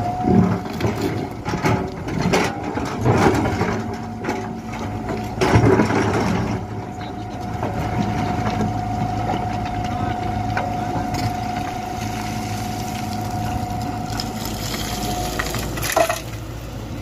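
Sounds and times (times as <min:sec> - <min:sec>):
diesel engine under load: 0:00.0 - 0:17.0
steady whine: 0:00.0 - 0:17.0
bucket scraping on stone: 0:14.1 - 0:16.4.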